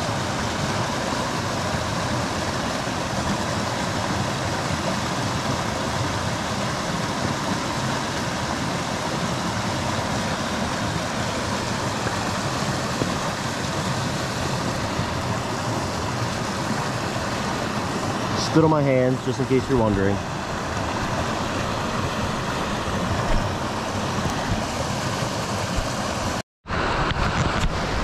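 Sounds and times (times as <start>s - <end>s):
stream water rushing: 0.0s - 28.0s.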